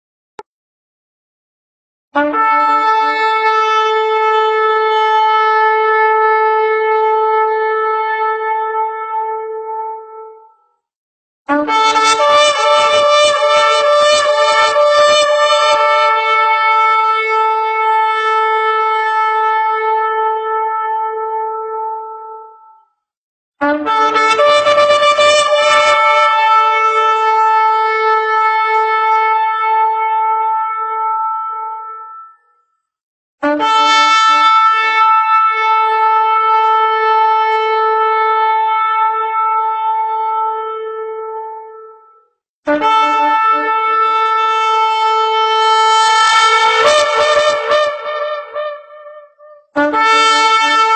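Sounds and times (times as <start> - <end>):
shofar blast: 2.2 - 10.4, 11.5 - 22.5, 23.6 - 32.4, 33.4 - 42.0, 42.7 - 50.9
ram's horn blast: 42.7 - 50.9.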